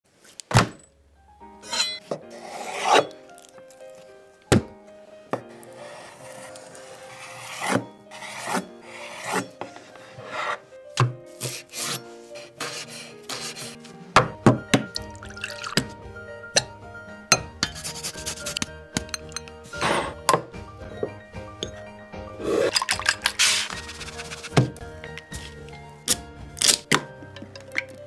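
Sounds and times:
light background music: 1.2s - 28.0s
chopping herbs: 10.3s - 14.8s.

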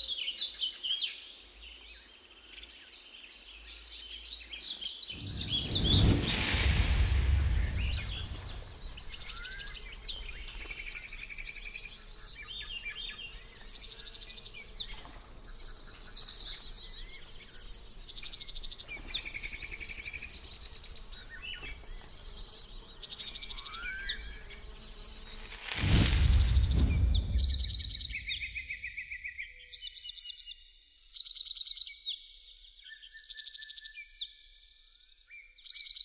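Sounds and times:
songbirds singing and chirping: 0.0s - 36.0s
low rumble: 5.2s - 9.4s, 25.7s - 29.0s.

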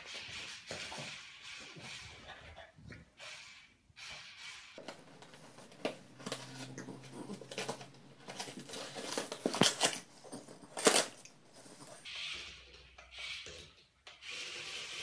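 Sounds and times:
dog tearing cardboard: 4.8s - 12.2s.

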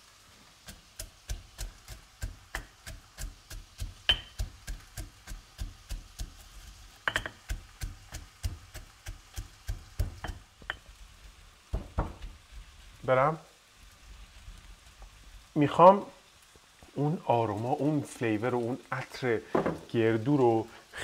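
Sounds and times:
stone pestle pounding in mortar: 0.7s - 6.4s, 7.0s - 10.8s.

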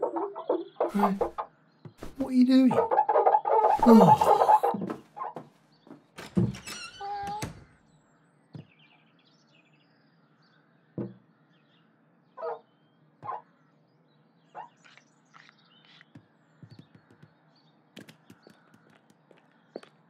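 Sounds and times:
faint birds chirping: 0.0s - 20.0s
short squeaks: 6.3s - 7.6s
soft thumps: 11.0s - 11.2s.

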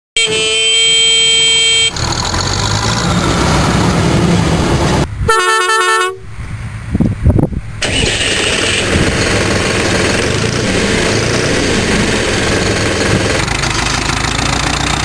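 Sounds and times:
horn sounding: 0.2s - 2.0s, 5.2s - 6.3s
wavering horn: 0.2s - 2.0s, 5.3s - 6.3s
combine harvester engine: 0.4s - 5.4s, 7.7s - 15.0s.

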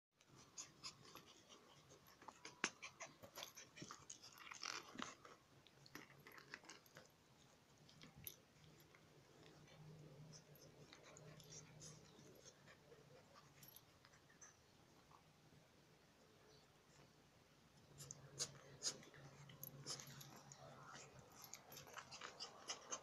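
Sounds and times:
puppy teeth clicking: 18.0s - 23.0s.

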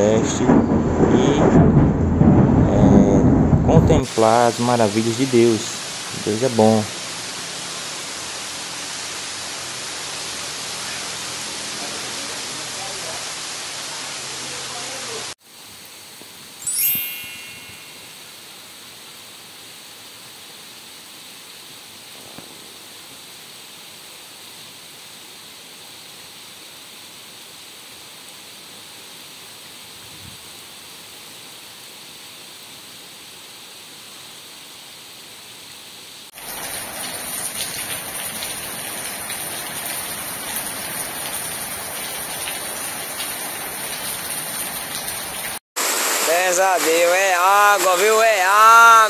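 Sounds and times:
raindrops splashing: 0.0s - 15.4s, 36.3s - 48.3s
heavy rain hissing: 0.0s - 49.0s.

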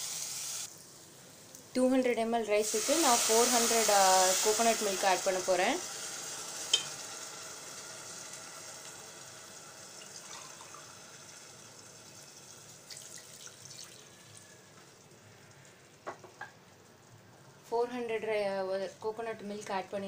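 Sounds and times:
liquid pouring into pot: 9.7s - 14.5s.

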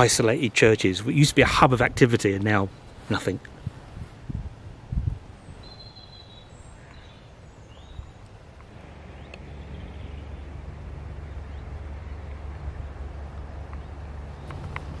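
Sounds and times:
bird chirps and whistles: 5.6s - 7.1s
low rumble: 7.8s - 15.0s.

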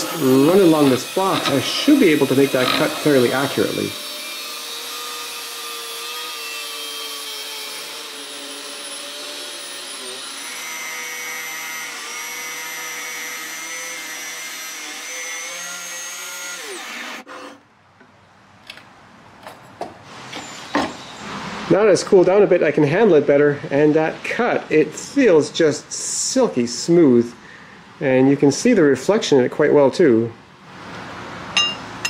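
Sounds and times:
angle grinder cutting steel: 0.0s - 17.6s.

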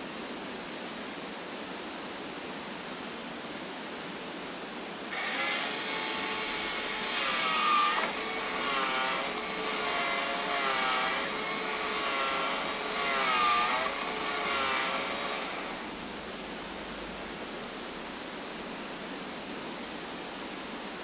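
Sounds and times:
small motor whirring: 5.1s - 15.8s.

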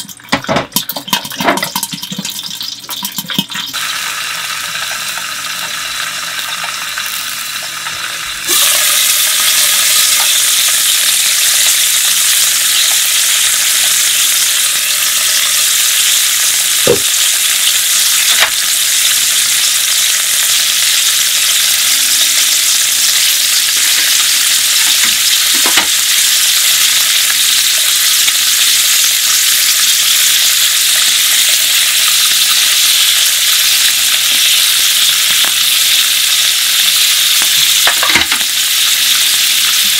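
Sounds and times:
knocks in a pan: 0.3s - 2.4s, 16.9s - 17.2s, 18.3s - 18.6s, 24.8s - 26.0s, 37.8s - 38.5s
shellfish sizzling in a frying pan: 1.4s - 39.9s.

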